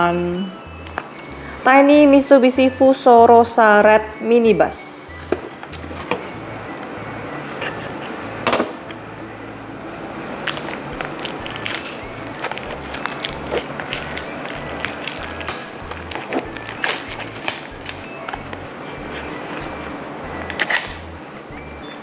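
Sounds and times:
background music with bass line: 0:00.0 - 0:22.0
cardboard box being opened: 0:10.6 - 0:17.7.

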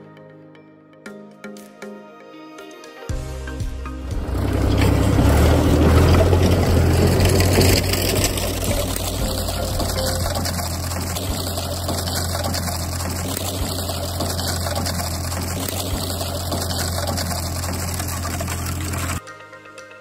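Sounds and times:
tractor engine drone: 0:04.0 - 0:19.2.

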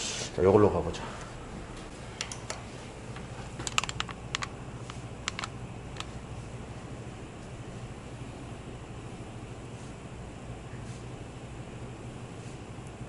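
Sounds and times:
low steady hum: 0:00.0 - 0:13.0
light clicks: 0:03.6 - 0:06.1.

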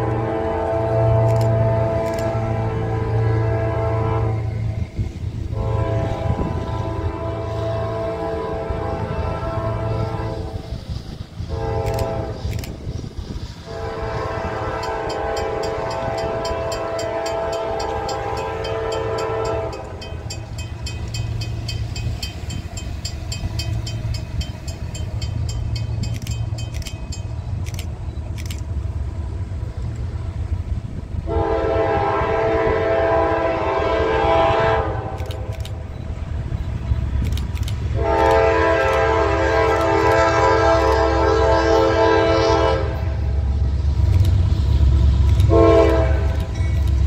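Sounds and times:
locomotive air horn blasts: 0:00.0 - 0:10.8, 0:11.4 - 0:12.7, 0:13.6 - 0:21.1, 0:31.3 - 0:35.7, 0:37.9 - 0:43.4, 0:45.4 - 0:46.6
train rumbling: 0:00.0 - 0:47.0.

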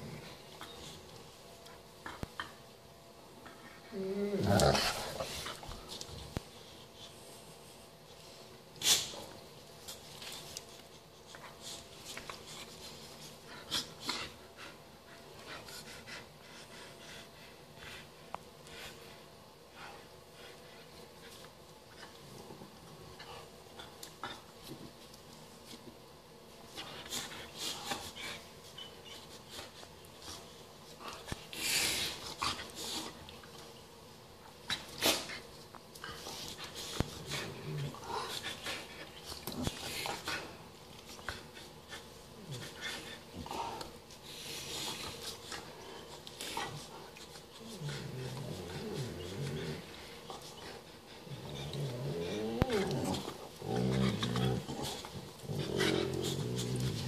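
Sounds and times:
dogs play-fighting: 0:00.0 - 0:57.0
dogs growling: 0:03.8 - 0:05.5, 0:47.6 - 0:57.0.

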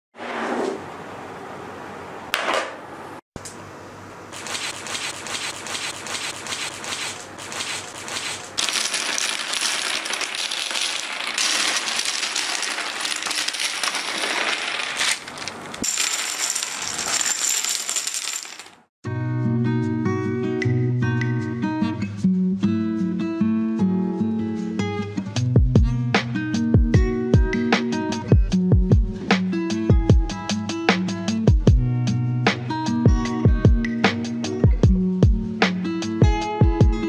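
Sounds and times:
plastic blocks clattering onto table: 0:08.6 - 0:18.9.

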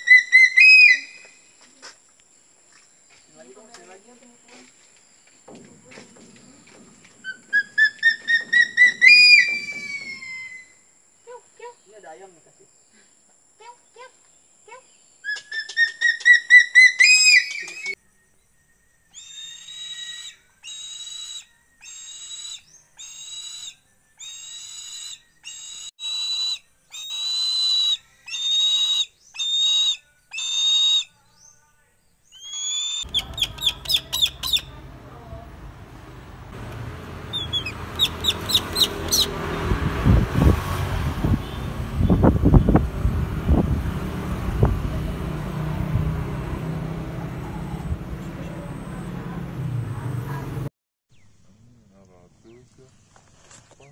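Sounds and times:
outdoor background noise: 0:00.0 - 0:53.9
raptors whistling calls: 0:06.6 - 0:10.8, 0:15.2 - 0:18.0, 0:19.0 - 0:31.6, 0:32.2 - 0:34.8, 0:37.2 - 0:39.7.

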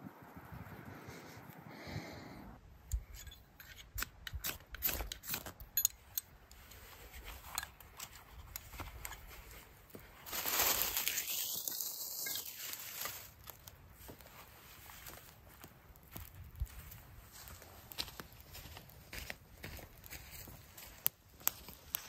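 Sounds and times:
twigs snapping and rustling: 0:06.5 - 0:14.3, 0:15.0 - 0:22.0.

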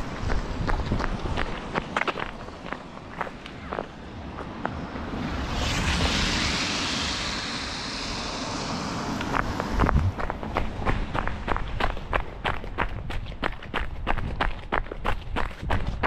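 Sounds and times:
rushing hiss: 0:04.8 - 0:11.8
runner's footsteps: 0:09.8 - 0:16.0.

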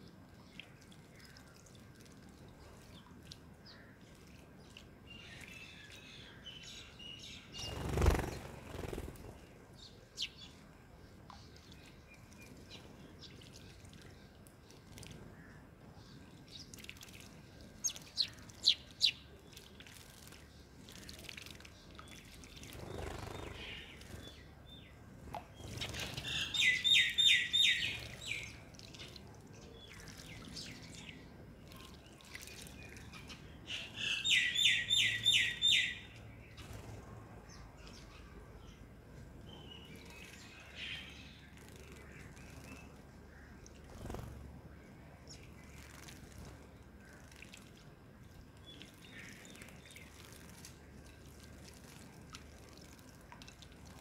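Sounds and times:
sparrows chirping: 0:02.6 - 0:52.0.

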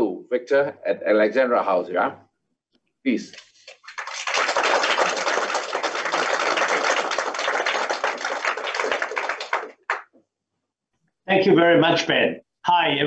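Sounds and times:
group applauding: 0:03.3 - 0:10.1.

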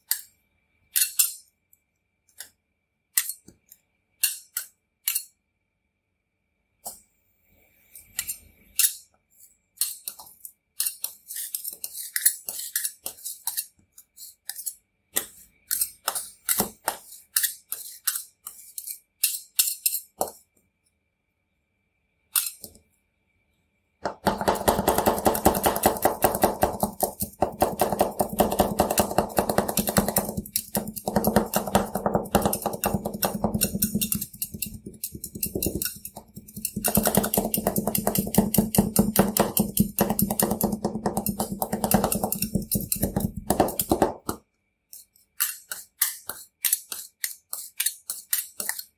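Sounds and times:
metal spatulas scraping on steel: 0:10.8 - 0:20.1, 0:45.4 - 0:48.9
fast spatula chopping: 0:14.5 - 0:18.9, 0:24.0 - 0:44.4, 0:45.0 - 0:48.9.

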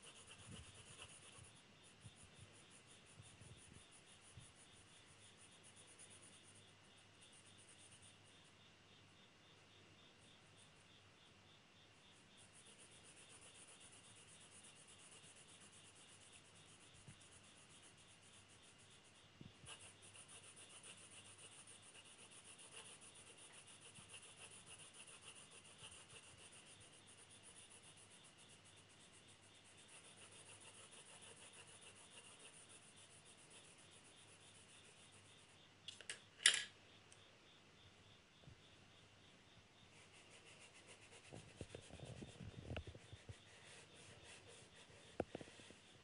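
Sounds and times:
pencil shading on paper: 0:00.0 - 0:08.3, 0:12.0 - 0:35.6, 0:39.9 - 0:46.0
sharp clicks: 0:35.9 - 0:37.2.

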